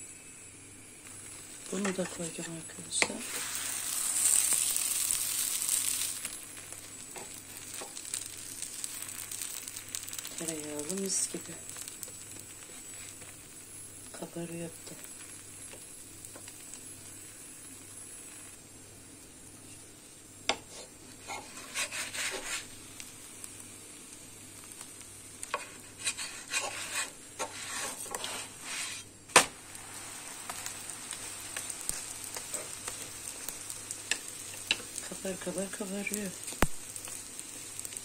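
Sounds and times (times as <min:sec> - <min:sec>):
dough sizzling in a pan: 0:00.0 - 0:38.0
wooden spatula scraping pan: 0:01.7 - 0:04.6, 0:20.5 - 0:22.7, 0:25.5 - 0:29.1.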